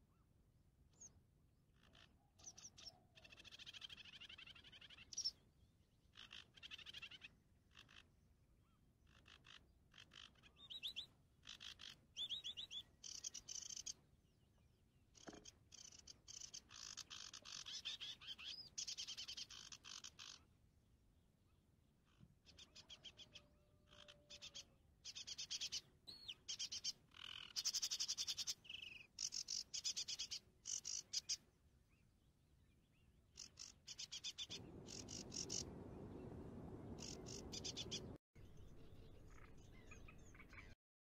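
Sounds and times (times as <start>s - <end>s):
frogs trilling: 33.4s - 35.8s, 36.9s - 38.2s
steady low rushing noise: 34.6s - 38.2s.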